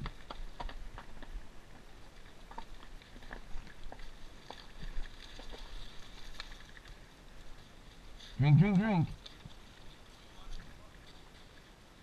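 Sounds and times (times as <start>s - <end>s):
dogs splashing in puddle: 0.0s - 8.6s.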